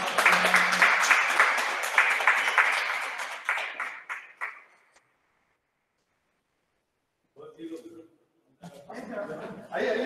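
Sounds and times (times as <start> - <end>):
small group applauding: 0.0 - 5.0.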